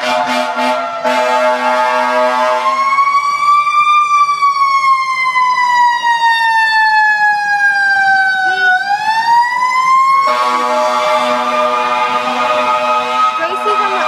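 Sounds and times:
fire truck air horn: 0:00.0 - 0:03.0, 0:10.1 - 0:14.0
siren winding up and down: 0:01.8 - 0:14.0.

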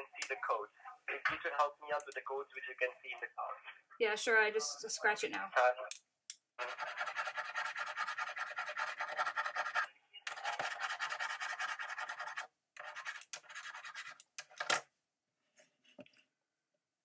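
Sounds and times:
rapid scratching strokes: 0:06.6 - 0:14.2.

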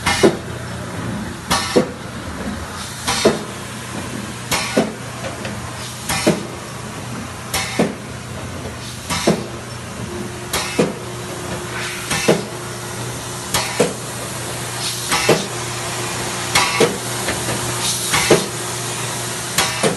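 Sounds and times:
mechanical hum: 0:00.0 - 0:19.9
machine thump: 0:12.1 - 0:12.6, 0:19.6 - 0:19.9
air hiss: 0:14.8 - 0:19.9.

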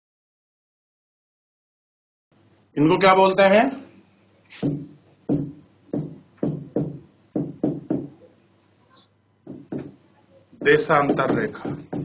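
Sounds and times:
pen knocking on whiteboard: 0:04.6 - 0:08.2, 0:09.4 - 0:10.0, 0:10.6 - 0:12.0.

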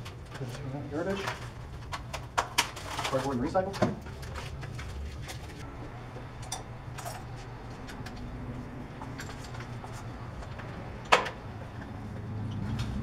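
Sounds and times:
steady low hum: 0:04.0 - 0:13.0.

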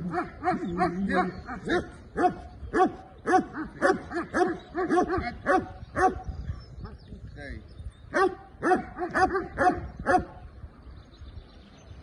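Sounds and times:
dog barking rapidly: 0:01.6 - 0:06.2, 0:08.1 - 0:10.4.

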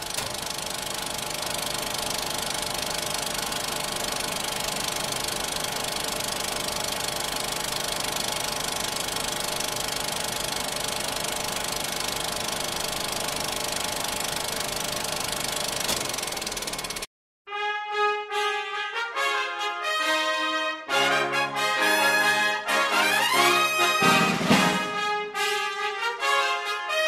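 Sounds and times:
film projector clattering: 0:00.0 - 0:17.1.

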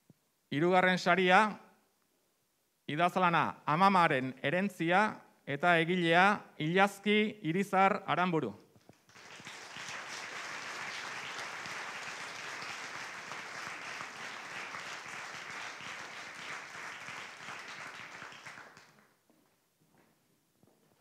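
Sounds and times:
audience applauding: 0:09.0 - 0:19.2.

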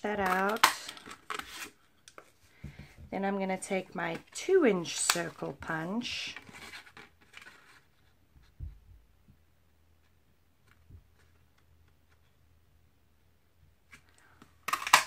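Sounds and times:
soft rustling of card: 0:00.3 - 0:09.0, 0:09.9 - 0:12.6.

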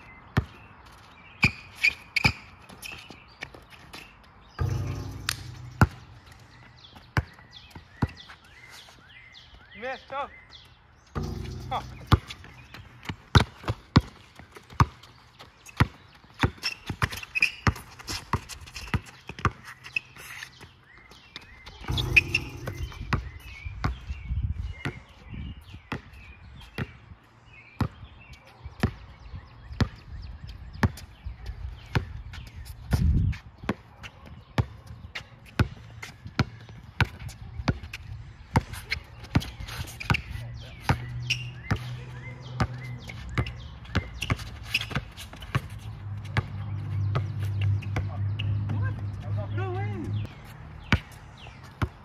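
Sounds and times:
basketball bouncing on hard court: 0:00.3 - 0:00.6, 0:04.6 - 0:08.2, 0:11.1 - 0:15.1, 0:15.8 - 0:19.6, 0:21.8 - 0:24.1, 0:34.6 - 0:41.1, 0:42.6 - 0:49.1, 0:51.8 - 0:52.0.

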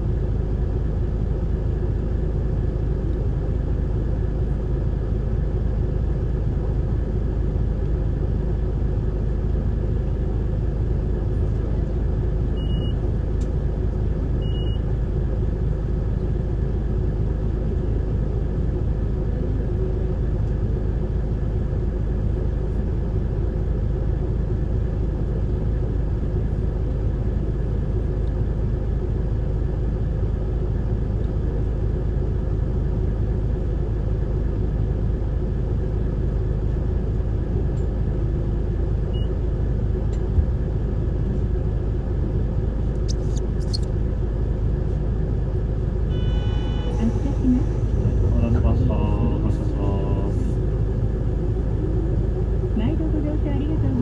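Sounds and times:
bus engine and road rumble: 0:00.0 - 0:54.0
short high beeps: 0:46.1 - 0:47.0.

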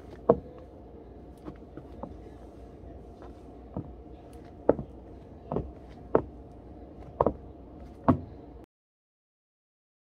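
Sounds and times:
heels on hardwood floor: 0:00.0 - 0:00.7, 0:03.2 - 0:06.4, 0:07.0 - 0:08.4.

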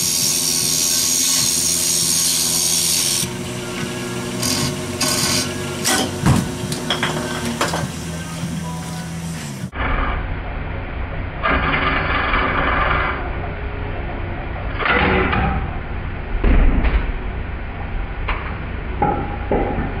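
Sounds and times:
wood lathe humming: 0:00.0 - 0:09.8.

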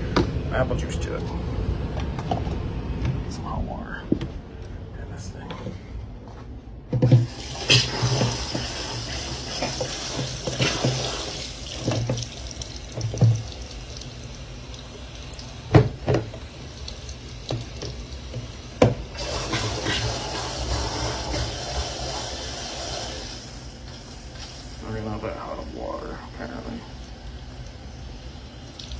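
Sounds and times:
faucet filling plastic jug: 0:07.0 - 0:28.9
jug knocking against sink: 0:12.9 - 0:13.5, 0:15.7 - 0:16.4, 0:17.5 - 0:19.0.

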